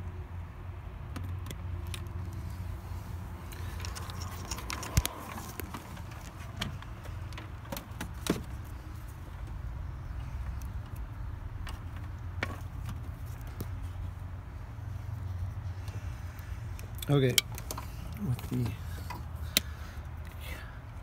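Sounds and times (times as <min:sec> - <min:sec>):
sharp clicks and knocks: 0:03.5 - 0:08.7.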